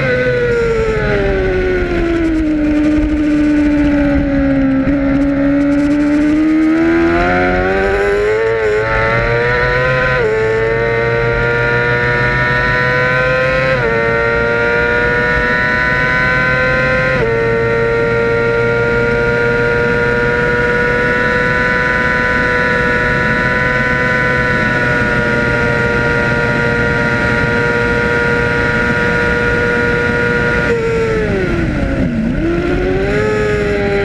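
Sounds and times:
wind rush: 0.0s - 11.3s
motorcycle engine revving: 0.0s - 34.0s.

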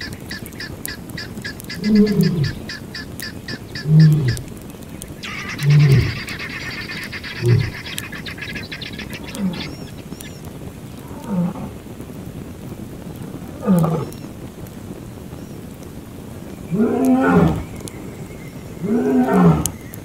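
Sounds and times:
lion grunting: 3.8s - 4.5s, 5.3s - 8.0s
high rapid rattling call: 5.2s - 9.7s.

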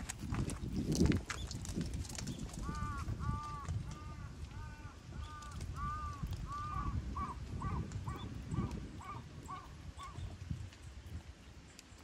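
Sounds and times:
crow cawing: 2.6s - 10.2s.

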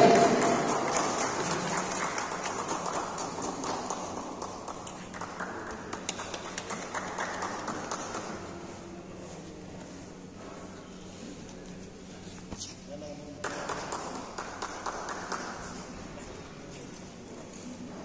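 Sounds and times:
small audience clapping: 0.0s - 8.8s, 13.4s - 16.3s.

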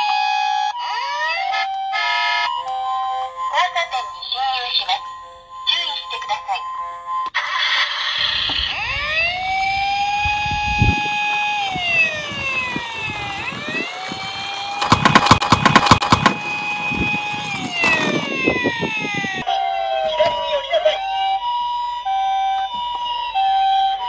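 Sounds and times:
toy siren wailing: 0.0s - 24.0s
plastic wheels rolling on wood: 8.1s - 15.2s, 16.2s - 19.4s.

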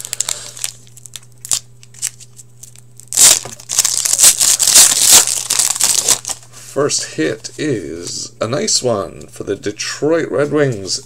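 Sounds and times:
foil wrapper crinkling and ripping: 0.0s - 6.5s.

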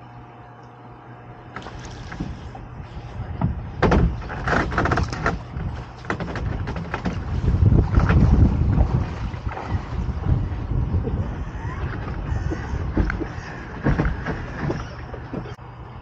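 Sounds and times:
water splashing: 1.5s - 2.6s, 3.8s - 15.6s
dinghy knocks and clunks: 1.6s - 2.6s, 3.3s - 9.7s, 11.0s - 15.6s.

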